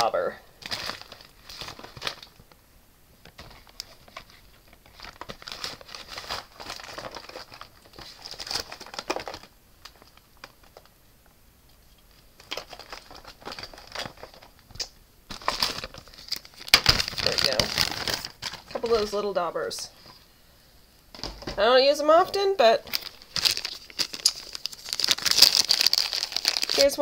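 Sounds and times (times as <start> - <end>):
plastic packaging crinkling: 0.1 - 2.5, 3.2 - 10.9, 12.0 - 19.3, 22.8 - 27.0.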